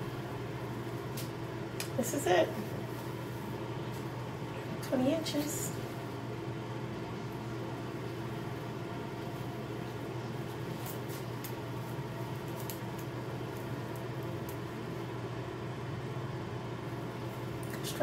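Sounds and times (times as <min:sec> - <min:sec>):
low room hum: 0:00.0 - 0:18.0
rustling of fabric: 0:08.6 - 0:14.1.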